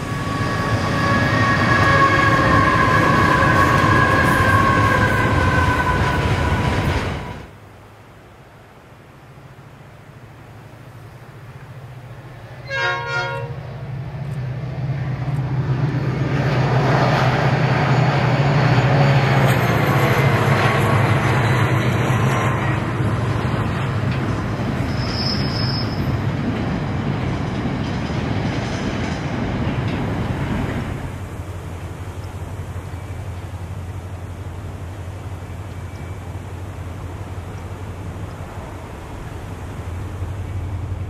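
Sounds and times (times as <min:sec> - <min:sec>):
locomotive horn blast: 0:00.0 - 0:06.2, 0:12.6 - 0:13.8
train wheels clattering on rail: 0:14.0 - 0:41.0.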